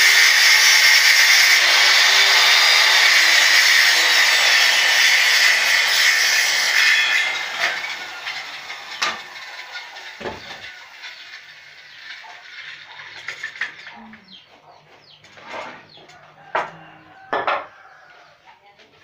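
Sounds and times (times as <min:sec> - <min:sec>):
circular saw winding down: 0:00.0 - 0:13.9.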